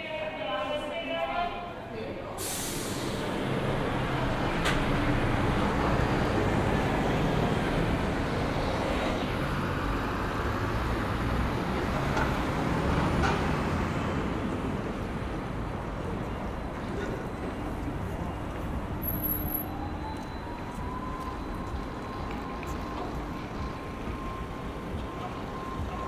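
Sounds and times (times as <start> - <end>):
city road traffic: 0.0 - 26.0
brief hiss: 2.4 - 3.2
heavy vehicle engine humming: 2.4 - 26.0.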